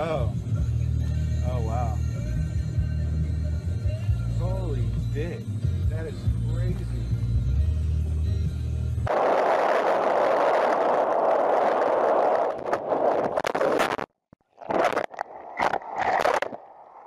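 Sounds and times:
wind noise: 9.0s - 17.0s.

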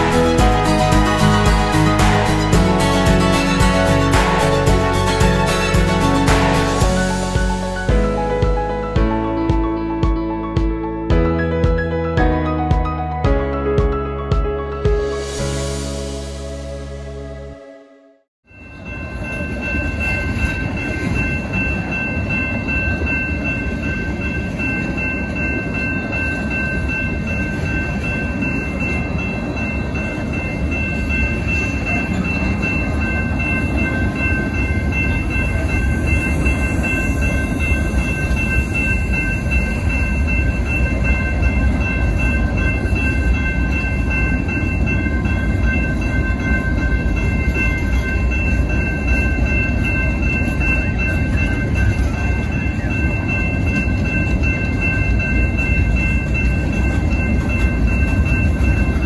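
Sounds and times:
crossing bell ringing: 0.0s - 17.7s, 18.4s - 59.0s
train wheels rumbling on rail: 18.7s - 59.0s.

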